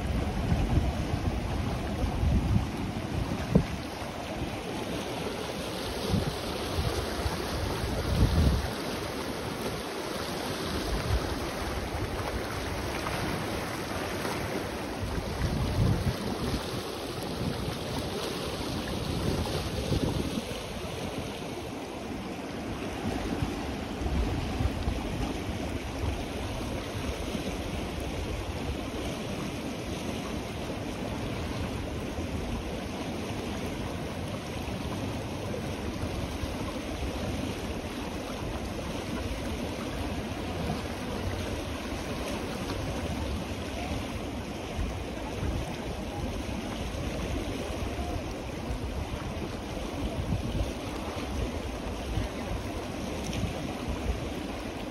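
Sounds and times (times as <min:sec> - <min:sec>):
river water rushing: 0:00.0 - 0:54.9.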